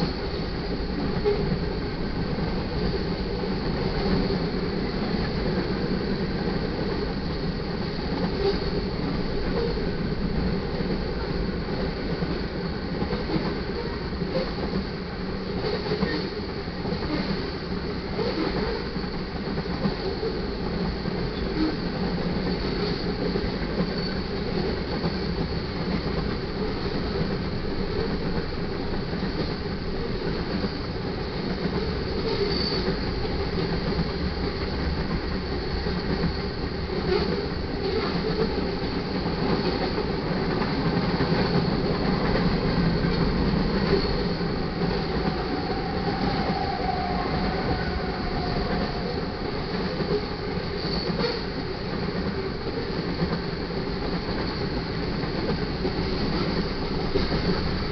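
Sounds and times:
train wheels rumbling on rails: 0:00.0 - 0:57.9
wheel squeal: 0:32.2 - 0:32.9.

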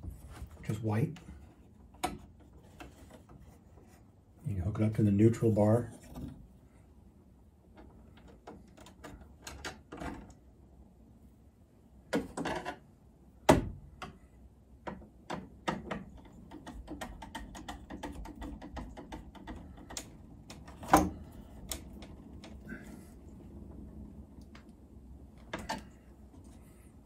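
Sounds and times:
clicks and taps on metal panel: 0:01.2 - 0:03.5, 0:13.4 - 0:22.8, 0:25.4 - 0:26.1.

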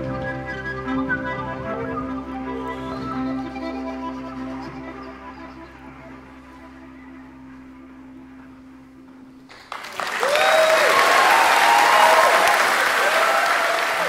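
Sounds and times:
low held music tone: 0:00.0 - 0:09.6
audience applause: 0:09.5 - 0:14.0
whoops and cheers: 0:09.9 - 0:14.0.

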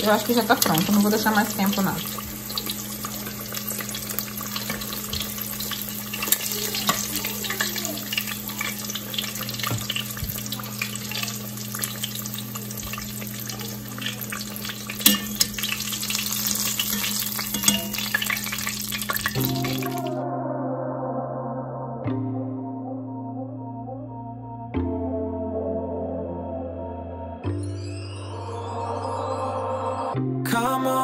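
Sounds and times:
chicken deep-frying in oil: 0:00.0 - 0:20.2
metal tongs clicking against pot: 0:06.1 - 0:09.4, 0:14.0 - 0:19.4.

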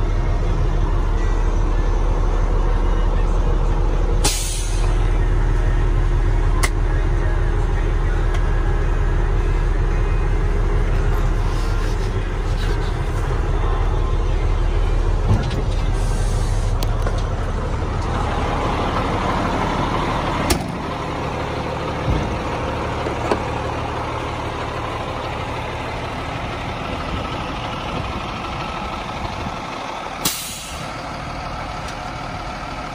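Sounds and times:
diesel truck engine idling: 0:00.0 - 0:32.9
short hiss: 0:04.2 - 0:04.8.

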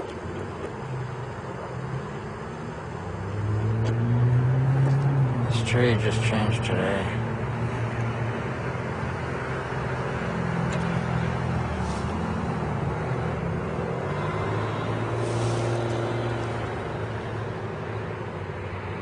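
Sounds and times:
traffic engine drone: 0:00.0 - 0:19.0
brief hiss: 0:15.2 - 0:15.8.

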